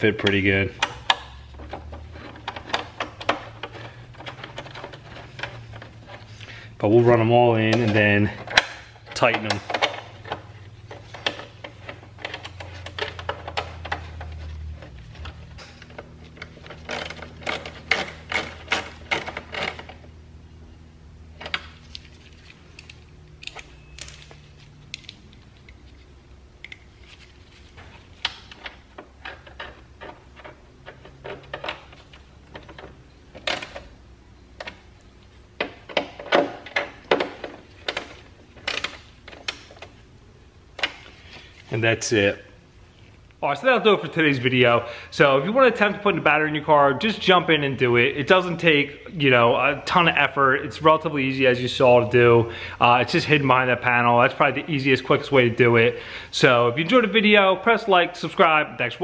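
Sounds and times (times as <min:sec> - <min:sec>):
low steady hum: 0:00.0 - 0:59.0.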